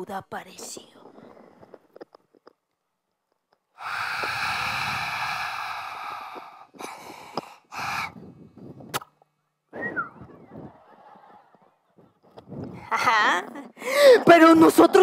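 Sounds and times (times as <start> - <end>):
person breathing into microphone: 3.7 - 8.9.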